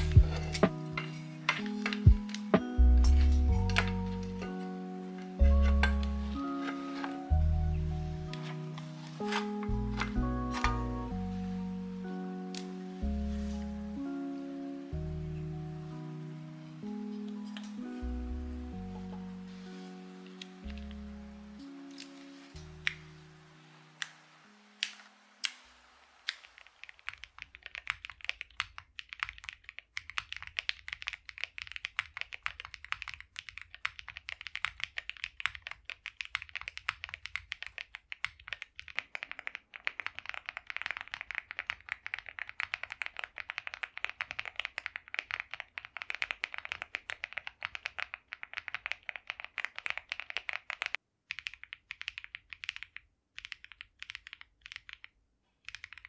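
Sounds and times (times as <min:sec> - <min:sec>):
mechanical keyboard typing: 0:26.3 - 0:56.0.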